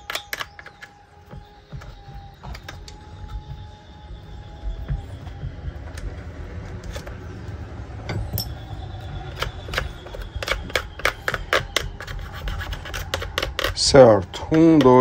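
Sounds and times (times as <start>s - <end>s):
metal tool clicking and scraping: 9.7s - 15.0s.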